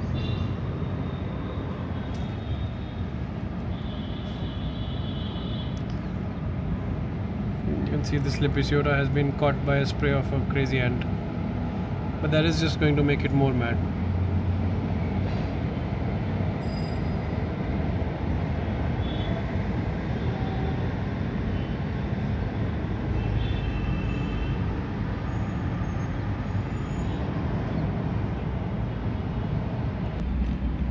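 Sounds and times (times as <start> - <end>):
low rumbling background noise: 28.1 - 30.9.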